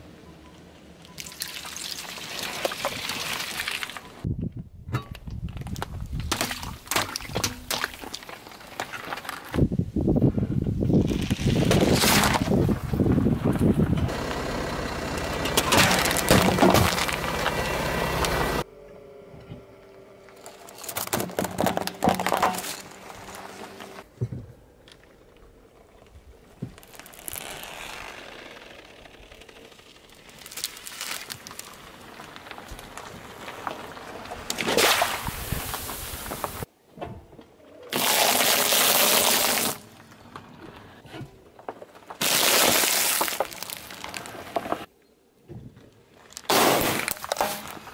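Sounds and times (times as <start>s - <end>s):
tyre crushing watermelon: 11.0s - 12.6s, 15.6s - 17.2s, 20.8s - 23.7s
loud liquid splash: 34.6s - 35.4s.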